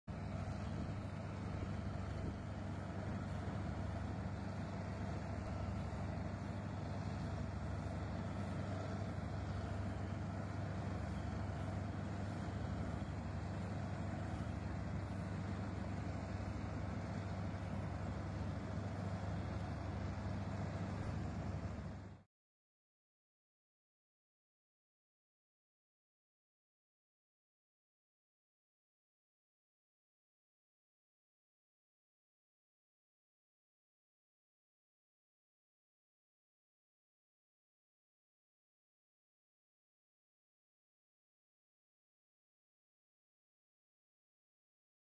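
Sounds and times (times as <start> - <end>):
farm machine engine droning: 0.1 - 22.3.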